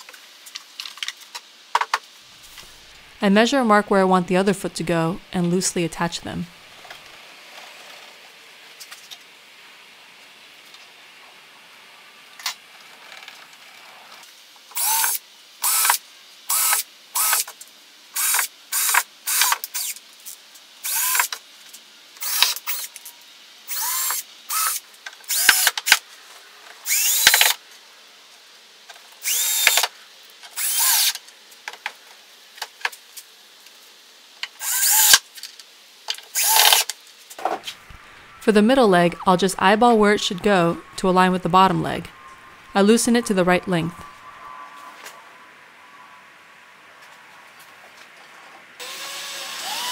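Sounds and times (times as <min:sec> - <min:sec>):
cordless drill driving screws: 0:14.8 - 0:17.5, 0:18.2 - 0:20.0, 0:20.8 - 0:21.3, 0:22.2 - 0:23.0, 0:23.7 - 0:26.0, 0:26.8 - 0:27.6, 0:29.2 - 0:29.9, 0:30.6 - 0:31.2, 0:34.6 - 0:35.2, 0:36.3 - 0:36.9, 0:48.8 - 0:49.9.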